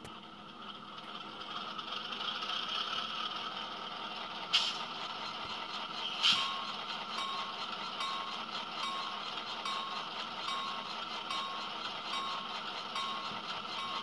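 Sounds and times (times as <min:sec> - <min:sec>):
diesel engine idling: 0:00.0 - 0:14.0
locomotive bell ringing: 0:06.3 - 0:14.0.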